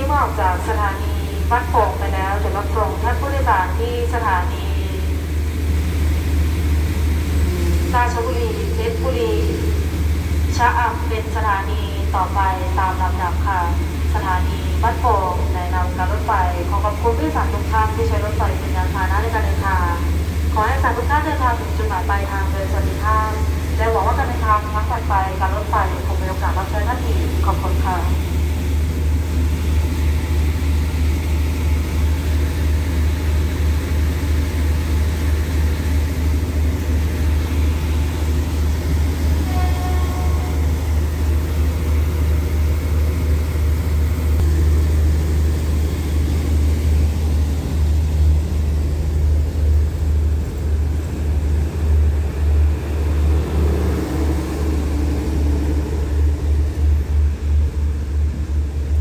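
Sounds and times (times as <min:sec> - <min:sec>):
diesel train engine rumble: 0:00.0 - 0:59.0
train horn note: 0:39.3 - 0:41.0.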